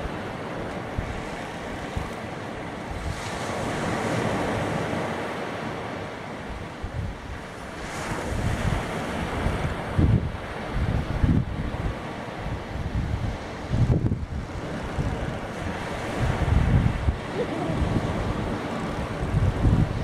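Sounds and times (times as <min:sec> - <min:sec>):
surf breaking on beach: 0:00.0 - 0:20.0
wind buffeting microphone: 0:06.5 - 0:20.0.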